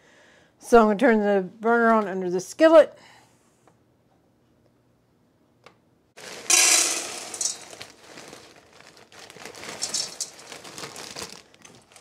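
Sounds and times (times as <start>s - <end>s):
frozen peas pouring into saucepan: 6.2s - 12.0s
plastic bag crinkling: 6.2s - 12.0s.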